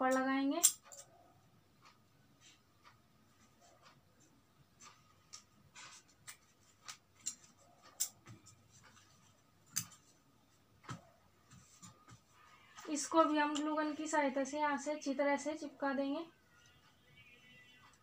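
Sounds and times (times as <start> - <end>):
scissors snipping cloth: 9.7 - 10.0.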